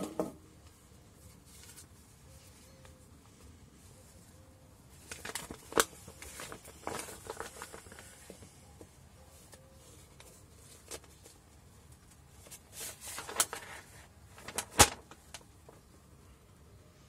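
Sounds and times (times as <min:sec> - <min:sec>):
paper leaflet rustling: 0:01.2 - 0:03.1, 0:04.9 - 0:15.9.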